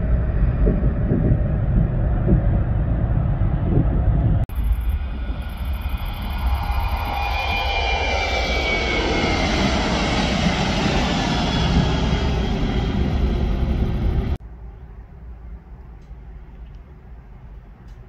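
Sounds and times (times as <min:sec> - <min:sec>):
jet engines roaring with whine: 0:00.0 - 0:14.4
distant rumble: 0:00.0 - 0:14.6.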